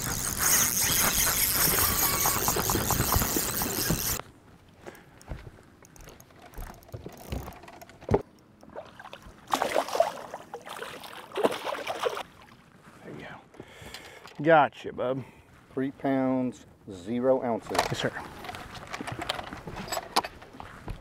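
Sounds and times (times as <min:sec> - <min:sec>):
fishing reel clicking: 0:00.0 - 0:04.2
fish splashing: 0:08.6 - 0:12.3.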